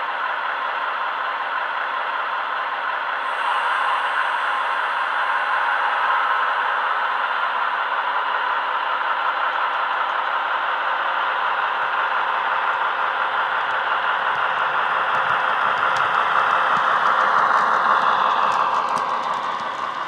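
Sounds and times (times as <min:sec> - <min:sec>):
model diesel engine sound: 0:07.0 - 0:20.0.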